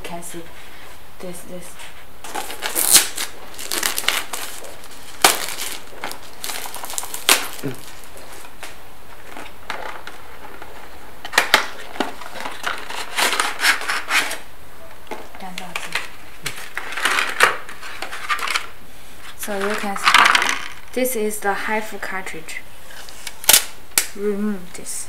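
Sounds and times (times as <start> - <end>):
packaging scraping and rustling: 2.2 - 14.5, 15.5 - 20.7.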